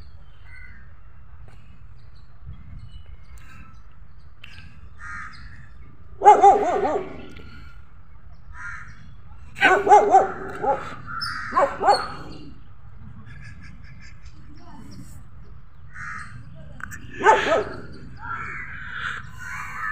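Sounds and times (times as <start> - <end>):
crows cawing faintly: 4.9 - 5.8, 8.5 - 9.2, 10.3 - 11.9, 15.8 - 16.6, 17.3 - 19.9
dog barking: 6.2 - 7.3, 9.6 - 12.5, 17.2 - 18.0.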